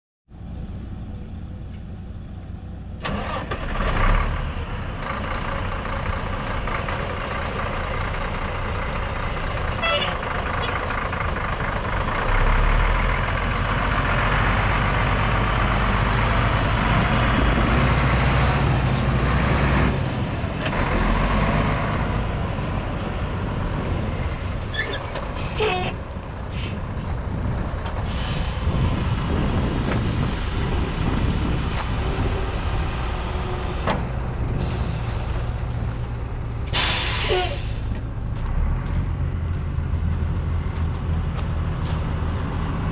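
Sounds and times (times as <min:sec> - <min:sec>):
diesel truck engine running: 0:00.4 - 0:42.9
air hisses: 0:36.7 - 0:37.9.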